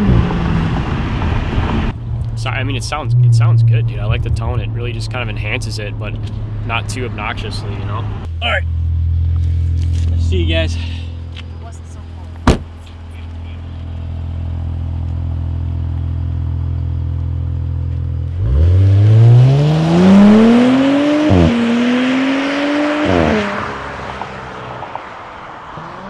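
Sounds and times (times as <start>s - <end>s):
car engine revving through gears: 0.0s - 2.0s, 18.2s - 26.0s.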